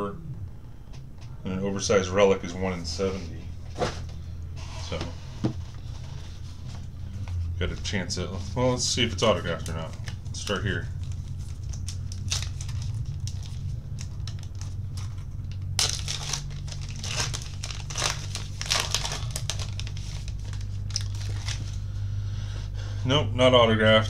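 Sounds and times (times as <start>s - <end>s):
plastic wrapper crinkling and tearing: 9.1s - 21.9s.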